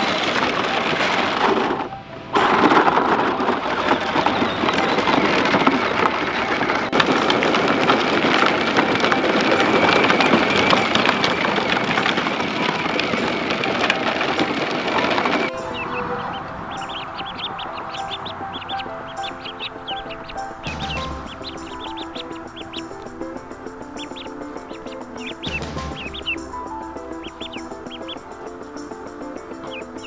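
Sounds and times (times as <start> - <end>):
plastic wheels crunching on gravel: 0.0 - 28.8.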